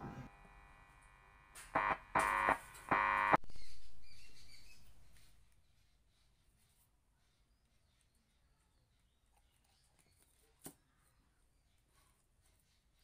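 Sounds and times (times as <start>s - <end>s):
short electronic tones: 1.7s - 3.4s.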